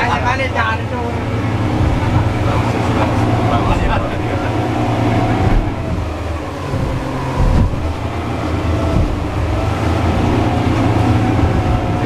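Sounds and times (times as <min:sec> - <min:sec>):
boat engines running: 0:00.0 - 0:12.0
hull thudding on wave: 0:01.5 - 0:02.6, 0:05.2 - 0:12.0.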